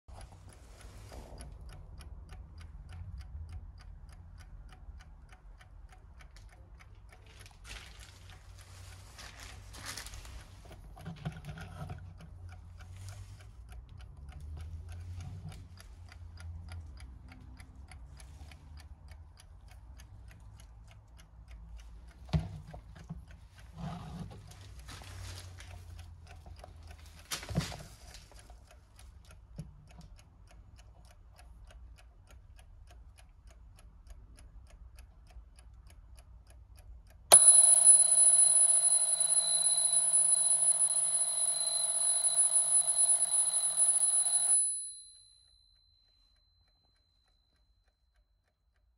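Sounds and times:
alarm clock ticking: 0.1 - 7.6, 9.8 - 48.9
alarm clock bells ringing: 37.3 - 46.4.

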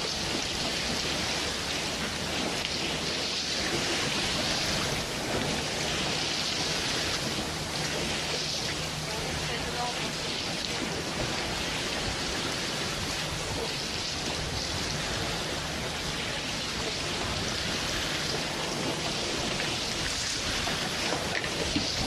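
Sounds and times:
steady rain: 0.0 - 22.0.

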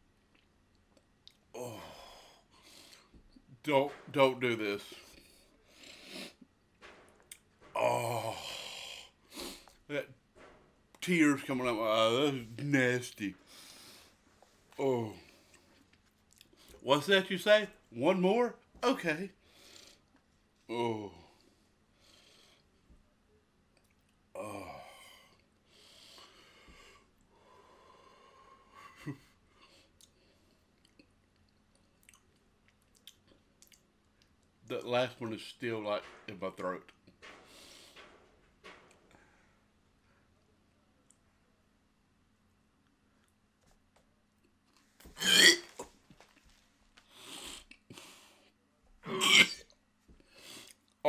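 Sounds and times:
breathy sounds: 1.5 - 3.2, 7.6 - 9.9, 24.4 - 30.7, 37.2 - 40.4
man groaning in disgust: 1.6 - 2.3, 7.8 - 9.1, 24.4 - 25.0
man retching: 45.1 - 45.9, 49.0 - 49.7.

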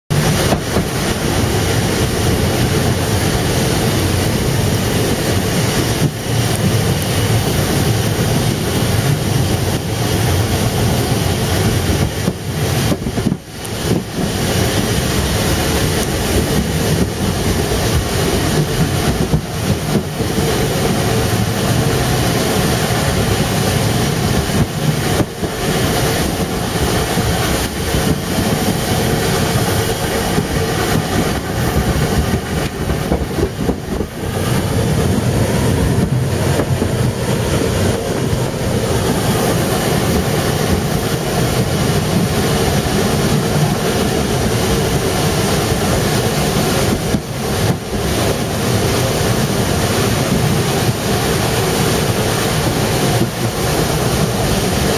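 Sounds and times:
train wheels running: 0.1 - 54.9.

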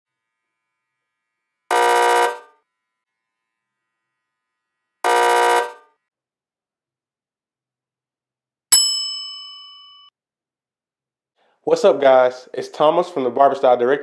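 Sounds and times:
electronic wrong-answer buzzer: 1.7 - 2.6, 5.0 - 6.0.

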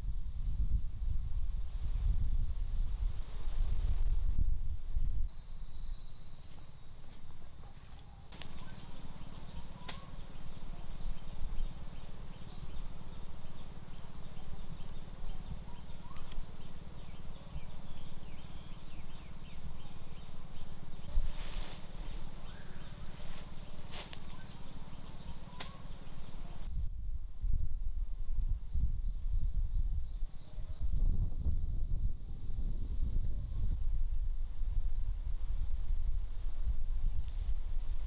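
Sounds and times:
low steady rumble: 0.0 - 38.0
rustle: 0.6 - 4.5, 5.3 - 26.7
bird and insect chirps: 5.3 - 26.7
high insect drone: 5.3 - 26.7
whistled bird calls: 5.6 - 20.8, 22.1 - 26.7.

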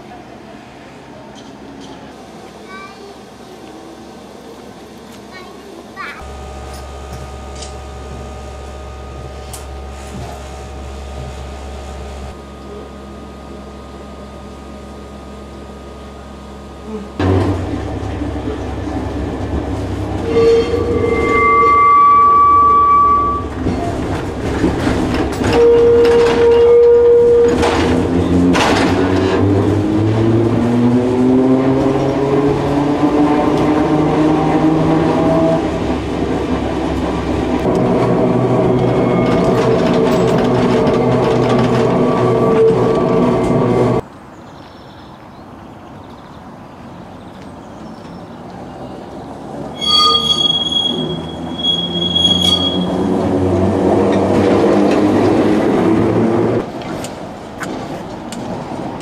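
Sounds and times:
tram wheels rumbling and clicking: 3.3 - 12.9, 13.6 - 44.2, 45.6 - 59.0
traction motors whining: 6.2 - 34.0, 34.6 - 44.0.

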